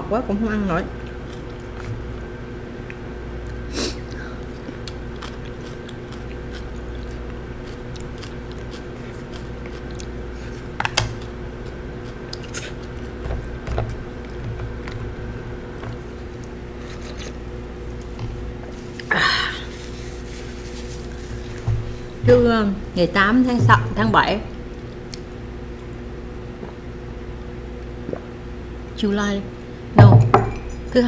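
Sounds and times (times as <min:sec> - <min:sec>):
steady background hum: 0:00.0 - 0:31.0
soft chewing: 0:01.0 - 0:02.0, 0:02.8 - 0:15.1, 0:15.8 - 0:22.2, 0:24.7 - 0:25.9.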